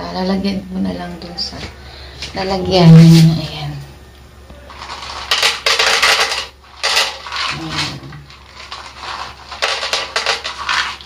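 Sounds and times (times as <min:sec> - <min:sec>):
kibble rattling into a bowl: 0:04.7 - 0:11.0.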